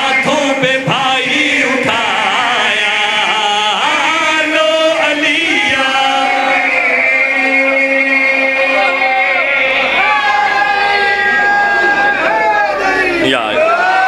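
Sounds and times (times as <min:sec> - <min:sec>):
men chanting in unison: 0:00.0 - 0:10.6.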